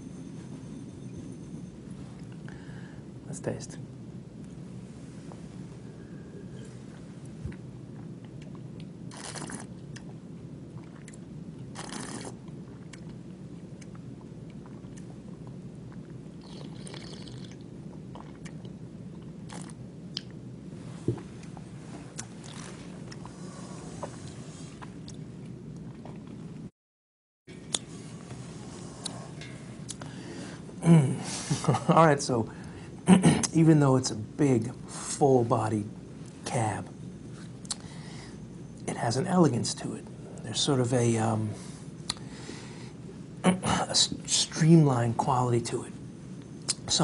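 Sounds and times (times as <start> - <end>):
steady low hum: 0.0 - 26.7, 27.5 - 47.0
slurping wine: 9.1 - 9.8, 11.8 - 12.4, 16.4 - 18.7, 22.2 - 24.9.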